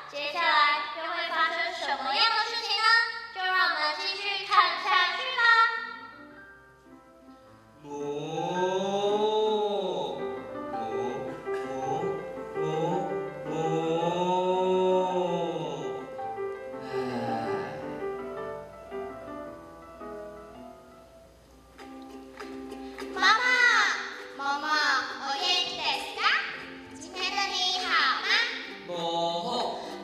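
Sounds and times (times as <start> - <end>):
slow melody over held chords: 7.8 - 21.4.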